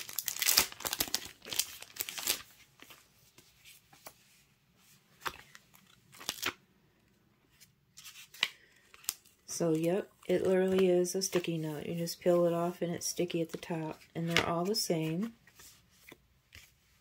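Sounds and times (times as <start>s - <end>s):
paper rustling and crinkling: 0.0s - 6.6s, 7.5s - 12.4s.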